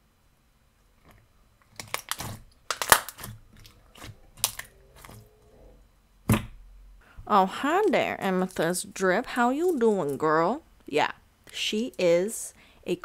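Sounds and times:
slime squished by hand: 1.7 - 5.2.

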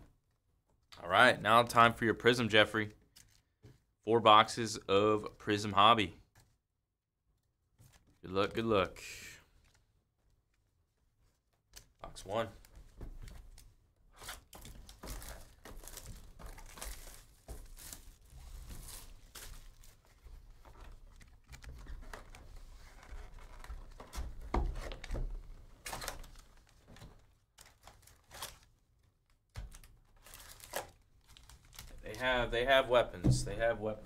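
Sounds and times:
wrapping tearing and crinkling: 13.3 - 24.2, 25.8 - 32.1.

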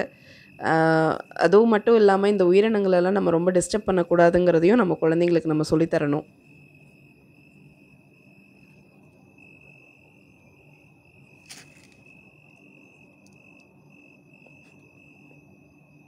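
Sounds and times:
crickets trilling: 0.0 - 16.0.

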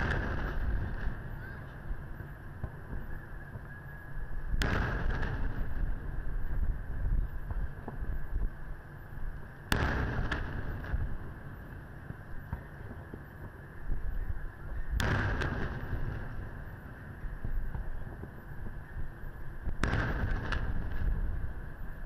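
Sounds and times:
small firework cracks: 0.0 - 8.6, 9.4 - 19.0, 19.6 - 22.0
firework shells booming: 0.0 - 8.7, 9.3 - 13.9, 14.6 - 22.0.

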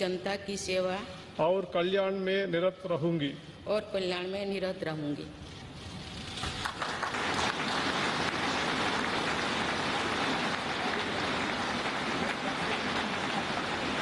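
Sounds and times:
large audience applauding: 6.3 - 14.0.

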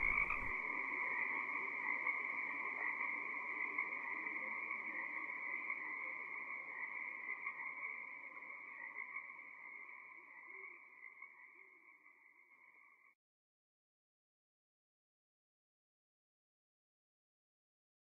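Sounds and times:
tree frogs calling: 0.0 - 0.5, 2.3 - 11.7.

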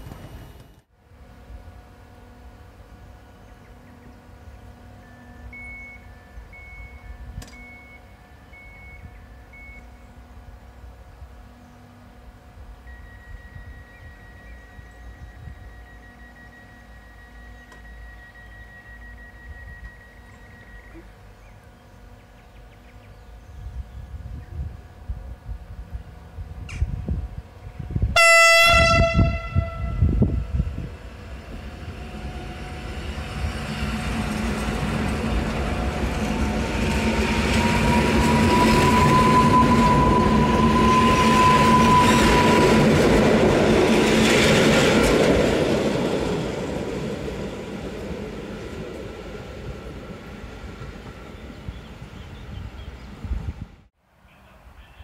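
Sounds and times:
electric train passing with whine: 0.0 - 54.0
train horn blast: 28.0 - 43.7.

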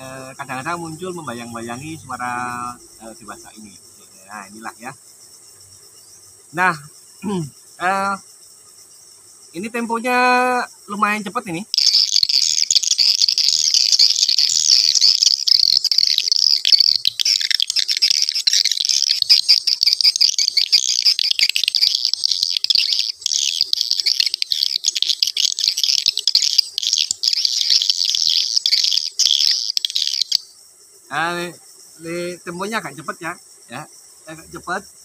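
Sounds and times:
swiftlet calls chirping: 0.0 - 5.0, 9.6 - 34.8.

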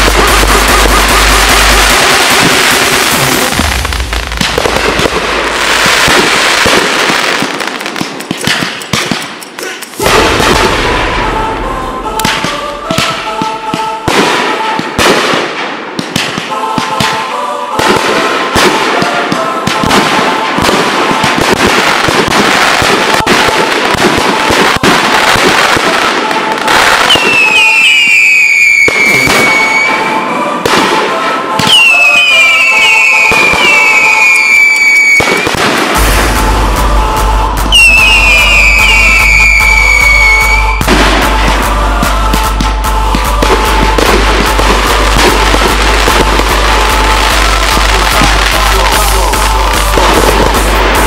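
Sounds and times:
fireworks booming and crackling: 0.0 - 51.0
firework whistle gliding down: 27.0 - 30.5, 31.6 - 36.1, 37.7 - 40.9.

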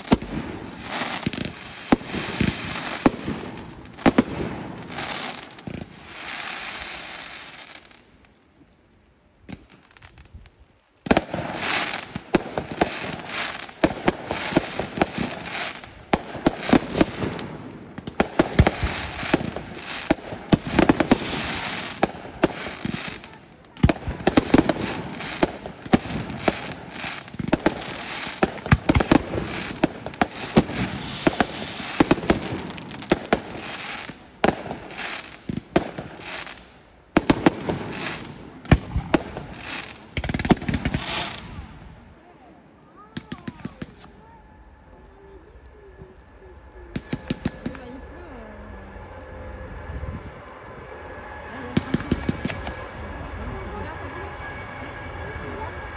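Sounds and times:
fireworks launching hiss: 0.0 - 8.1, 11.0 - 41.9
fireworks bangs and crackling: 0.0 - 8.4, 9.4 - 44.4, 45.0 - 48.4, 51.0 - 55.9.

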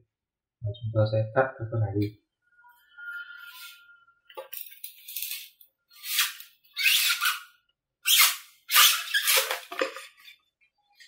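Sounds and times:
knife slicing foam squeakily: 6.0 - 9.5.

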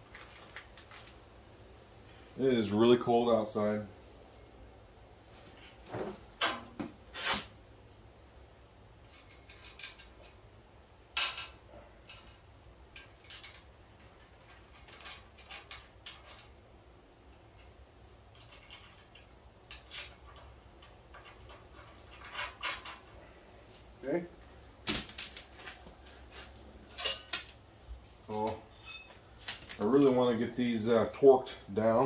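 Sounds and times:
metal bolts and nuts clinking: 8.9 - 23.4, 26.8 - 32.0.

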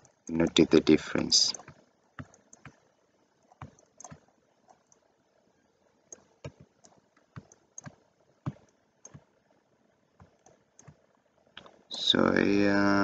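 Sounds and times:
computer mouse and keyboard clicks: 1.5 - 5.1, 6.1 - 9.4, 10.2 - 11.8.

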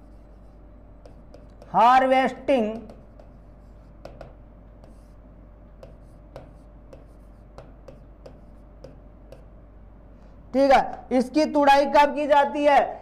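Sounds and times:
faint low hum: 0.0 - 12.2
stylus tapping on display: 1.0 - 1.8, 2.6 - 5.1, 5.7 - 9.6.

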